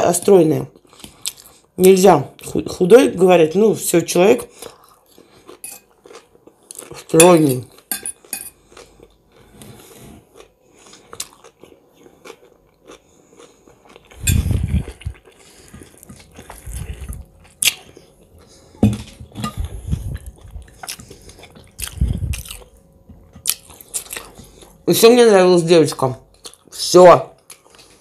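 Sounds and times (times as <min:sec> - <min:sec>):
chewing and crunching food: 0:00.3 - 0:02.9, 0:04.1 - 0:28.0
wet mouth sounds: 0:13.9 - 0:18.0, 0:19.4 - 0:22.7.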